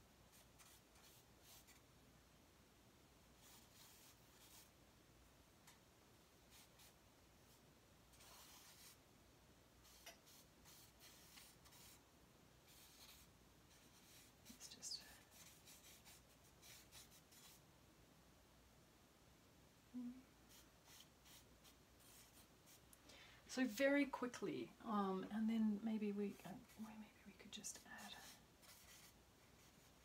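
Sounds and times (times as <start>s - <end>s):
charcoal scratching on paper: 0.3s - 1.8s, 3.4s - 4.7s, 6.5s - 7.0s, 8.1s - 9.0s, 9.8s - 12.0s, 12.7s - 17.6s, 20.5s - 22.8s, 28.0s - 30.0s.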